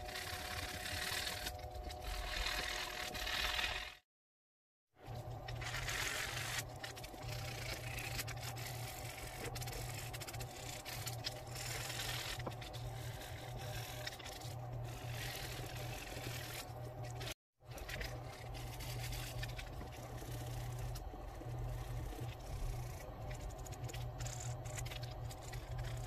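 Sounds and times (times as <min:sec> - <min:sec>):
hand file scraping wood: 0:00.0 - 0:04.0
steady low hum: 0:05.0 - 0:26.0.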